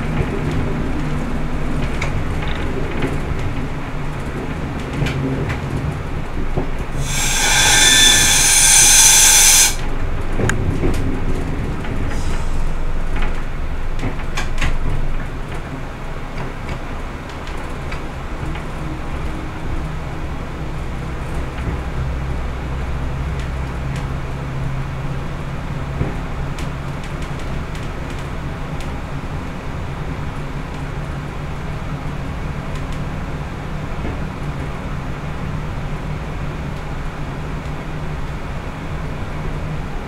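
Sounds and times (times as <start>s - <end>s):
diesel railcar drone: 0.0s - 40.0s
air hiss: 7.0s - 9.8s, 12.1s - 12.8s.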